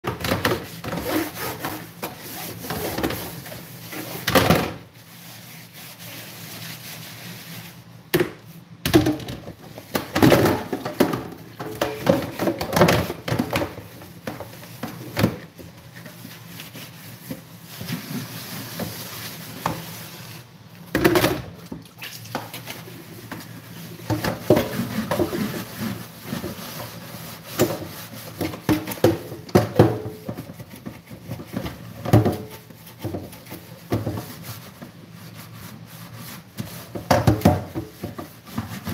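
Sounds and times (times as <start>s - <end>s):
sponge scrubbing in sink: 0.1s - 8.7s, 9.6s - 20.9s, 21.9s - 38.9s.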